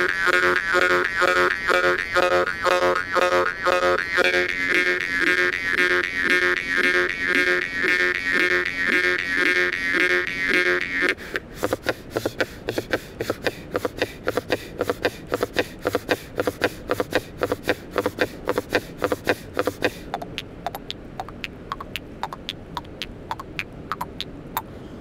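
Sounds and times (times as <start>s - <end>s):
jaw harp plucks: 0.0s - 24.7s.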